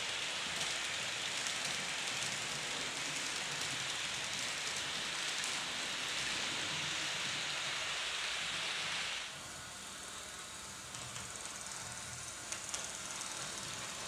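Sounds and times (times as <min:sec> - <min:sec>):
model train wheels rattling on rails: 0:00.0 - 0:09.1, 0:10.8 - 0:14.0.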